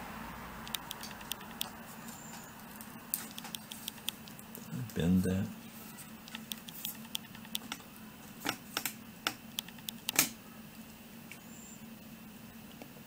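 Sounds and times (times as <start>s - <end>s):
faint low hum: 0.0s - 13.0s
small parts clicking and tapping: 0.7s - 1.8s, 3.1s - 4.6s, 6.2s - 10.4s.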